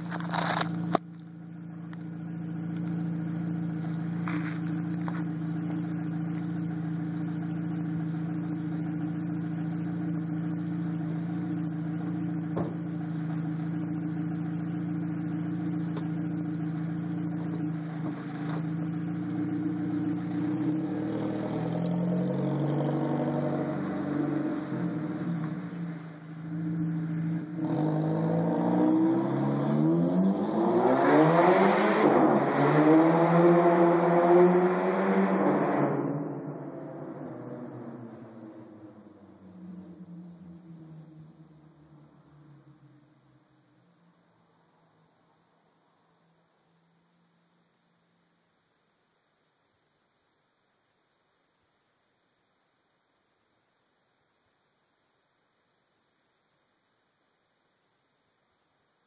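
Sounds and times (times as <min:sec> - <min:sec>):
car exhaust droning: 0:00.0 - 0:30.8, 0:35.9 - 0:48.4.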